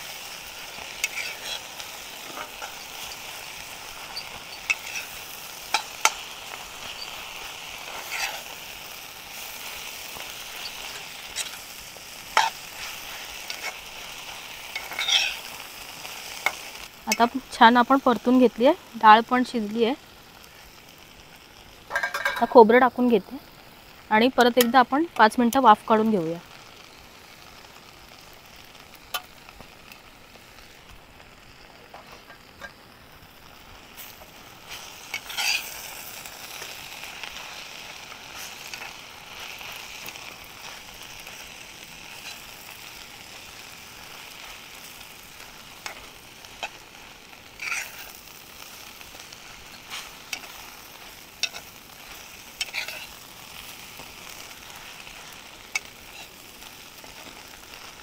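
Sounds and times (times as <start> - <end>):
vegetable sizzling in a pan: 0.0 - 58.0
spatula scraping a pan: 0.7 - 17.3, 34.0 - 58.0.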